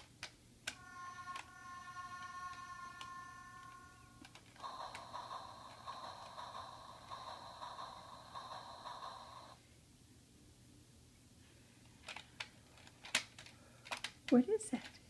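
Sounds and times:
steady electronic tone: 0.8s - 8.0s.

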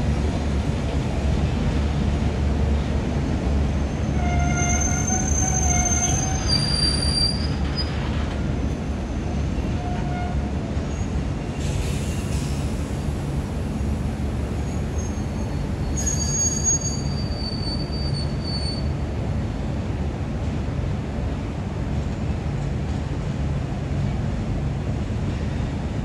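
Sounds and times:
train carriages rumbling past: 0.0s - 26.0s
train wheels squealing: 3.9s - 8.2s, 9.0s - 12.7s, 14.6s - 19.0s.

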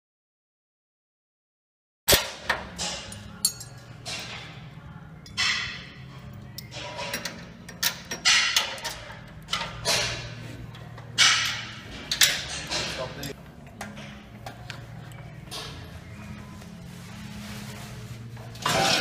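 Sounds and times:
metal clinks: 3.0s - 4.3s.

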